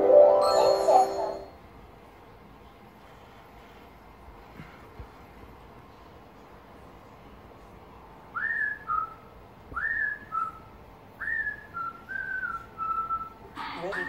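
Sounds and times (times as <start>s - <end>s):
whistled tune through tv speaker: 8.4s - 14.0s.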